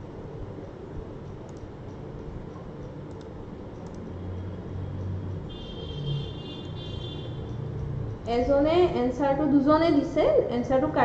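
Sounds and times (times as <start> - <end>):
computer mouse clicks: 1.3 - 4.1.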